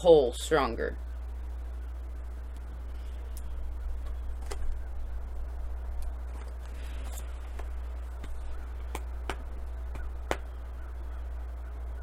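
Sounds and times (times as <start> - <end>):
steady low hum: 0.0 - 12.0
cards clicking and tapping: 7.5 - 10.5.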